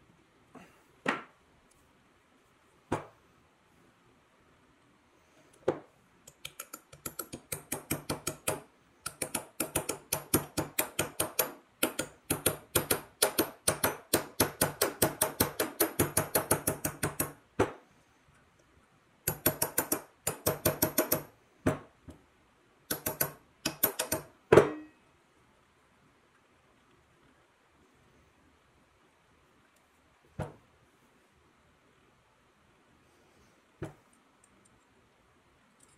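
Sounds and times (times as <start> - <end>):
metal-on-metal tapping: 22.9 - 25.0.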